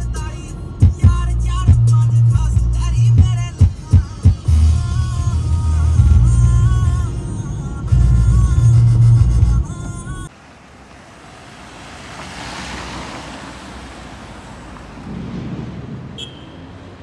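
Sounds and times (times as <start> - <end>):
music: 0.0 - 10.2
car driving past: 10.3 - 17.0.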